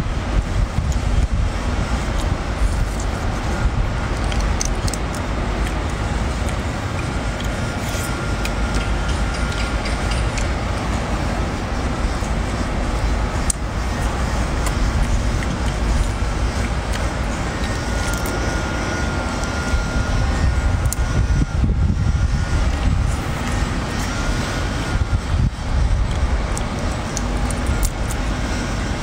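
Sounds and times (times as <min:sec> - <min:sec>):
low outdoor rumble: 0:00.0 - 0:29.0.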